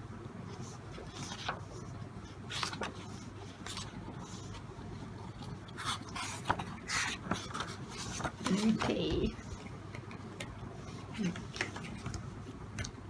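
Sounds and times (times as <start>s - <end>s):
pages turning: 0.6s - 1.9s, 2.5s - 4.6s, 5.6s - 9.6s.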